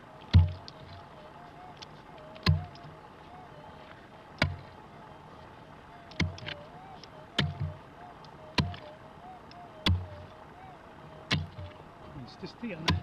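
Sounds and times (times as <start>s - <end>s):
pick striking stony soil: 12.8s - 13.0s.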